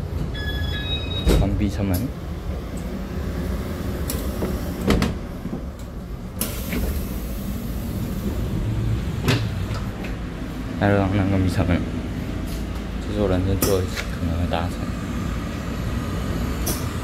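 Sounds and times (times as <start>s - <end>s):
train coach low hum: 0.0s - 17.0s
sliding door knocks: 4.4s - 5.7s.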